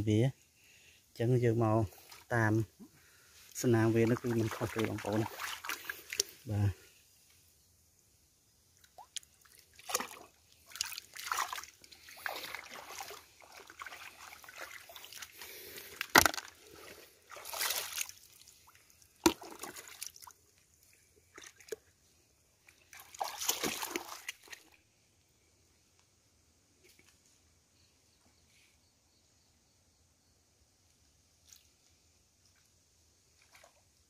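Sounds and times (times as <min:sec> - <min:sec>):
stream water sloshing and splashing: 0:01.6 - 0:06.9, 0:08.7 - 0:25.0, 0:31.4 - 0:34.0
wading in rubber boots: 0:03.5 - 0:06.5, 0:08.8 - 0:21.9, 0:22.6 - 0:24.8
sharp water splashes: 0:03.7 - 0:06.4, 0:08.8 - 0:16.6, 0:17.3 - 0:20.3, 0:22.9 - 0:24.6.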